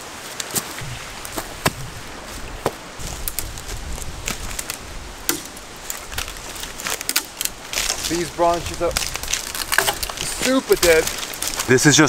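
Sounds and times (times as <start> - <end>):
rocks clacking together: 0.3 - 12.0
wind rumble on microphone: 0.8 - 11.7.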